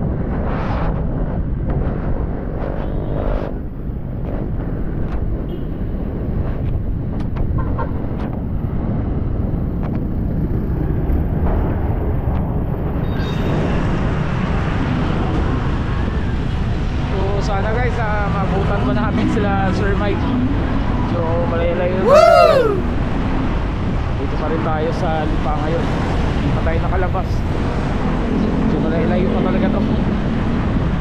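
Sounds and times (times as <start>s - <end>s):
wind rumbling on microphone: 0.0s - 13.0s.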